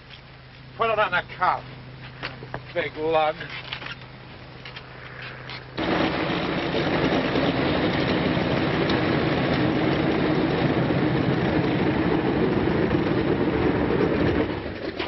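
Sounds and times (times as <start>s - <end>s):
loud engine noise: 4.8s - 15.0s.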